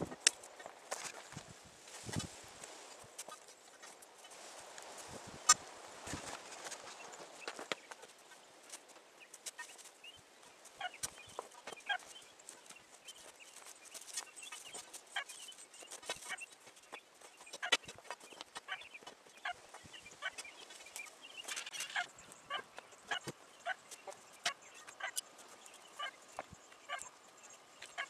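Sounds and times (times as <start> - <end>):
chickens clucking: 10.6 - 28.0.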